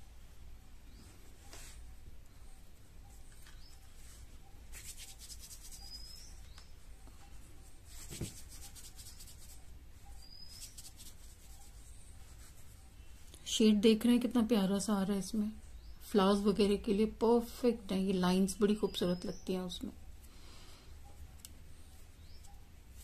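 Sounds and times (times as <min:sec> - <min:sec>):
hands rubbing clay: 0:03.2 - 0:06.7, 0:07.9 - 0:12.8.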